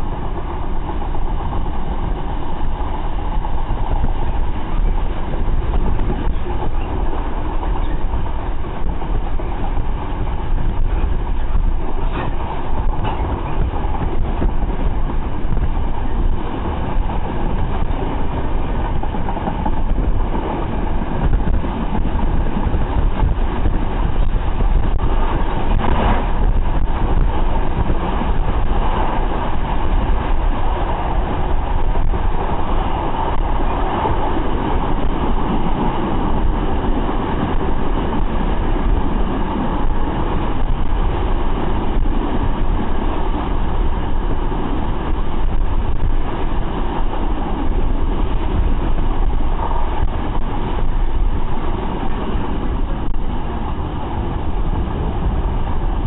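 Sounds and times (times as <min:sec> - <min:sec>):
rail clack: 0:00.0 - 0:56.0
train wheels rumbling on rails: 0:00.0 - 0:56.0.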